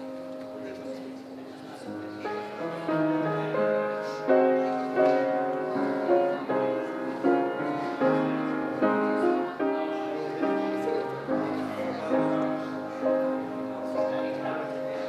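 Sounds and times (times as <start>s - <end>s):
slow piano chords: 0.0s - 15.0s.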